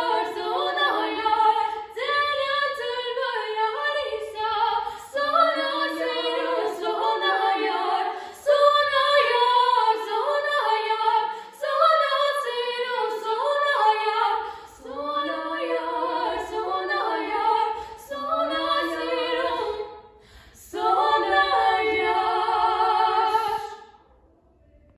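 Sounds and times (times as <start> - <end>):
girls singing a cappella: 0.0 - 24.2
breaths: 1.6 - 1.9, 4.8 - 5.2, 8.1 - 8.4, 11.3 - 11.6, 14.4 - 14.8, 17.7 - 18.1, 20.0 - 20.7.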